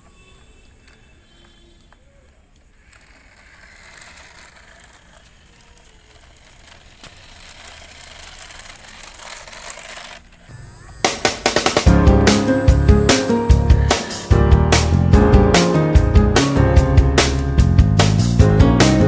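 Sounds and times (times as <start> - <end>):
toy car motor hissing: 2.7 - 11.9
music with drums: 11.1 - 19.0.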